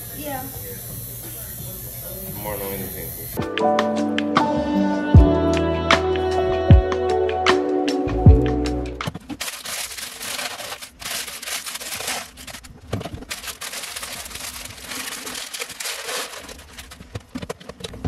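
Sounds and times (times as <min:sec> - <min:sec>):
plastic bag crinkling: 0:09.1 - 0:18.0
dry pasta pouring into container: 0:09.4 - 0:12.7, 0:13.3 - 0:17.1.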